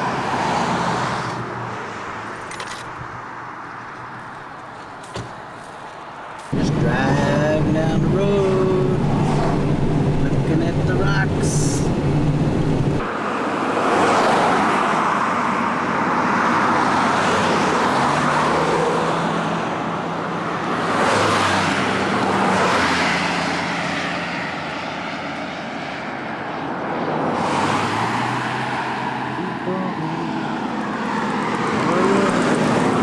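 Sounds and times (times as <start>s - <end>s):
tyre noise on road: 0.0s - 33.0s
low engine hum: 6.5s - 13.1s
wind noise: 6.5s - 13.2s.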